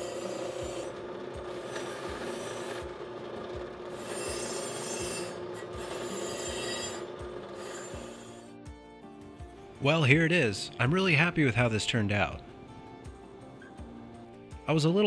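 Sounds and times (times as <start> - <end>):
drill press hum: 0.0 - 8.6
wire brush scratching metal: 4.0 - 8.5.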